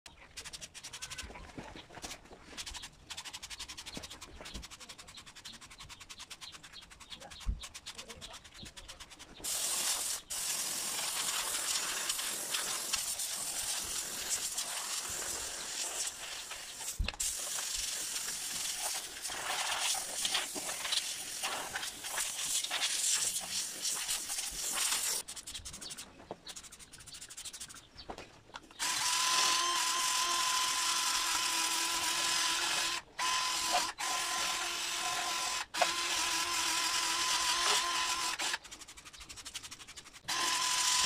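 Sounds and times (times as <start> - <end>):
steam cleaner hissing: 9.4 - 25.2.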